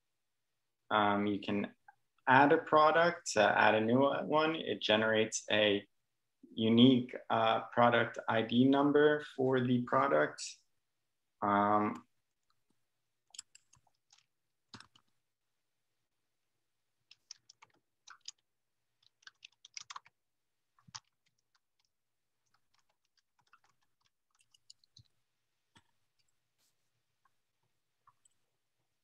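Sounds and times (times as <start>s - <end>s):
keyboard typing: 13.2s - 15.2s, 17.0s - 26.4s.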